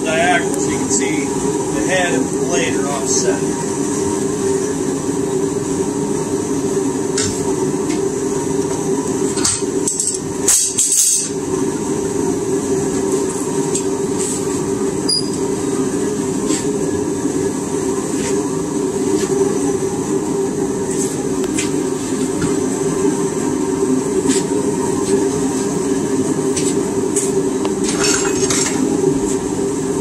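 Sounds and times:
steady mechanical drone: 0:00.0 - 0:30.0
short metallic ringing ping: 0:15.1 - 0:15.4.

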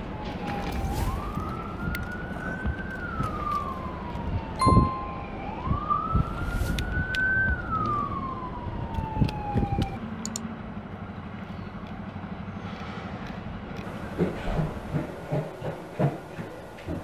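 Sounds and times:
siren wailing: 0:00.0 - 0:10.0
sharp clicks: 0:09.0 - 0:10.4.

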